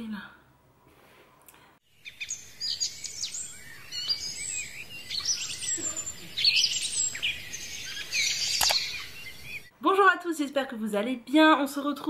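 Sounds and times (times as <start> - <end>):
birds chirping and whistling: 1.9 - 9.7.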